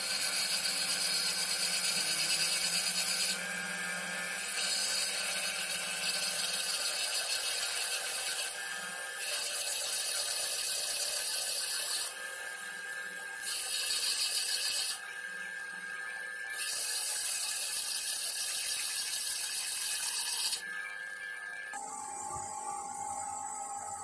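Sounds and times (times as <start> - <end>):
wire wheel hissing on metal: 0.0 - 3.5
grinder motor whining: 0.0 - 9.8.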